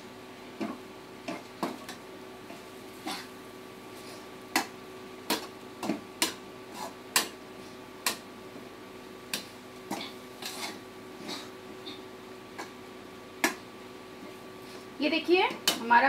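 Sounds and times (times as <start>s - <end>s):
metal spoon scraping a pan: 10.4s - 11.5s.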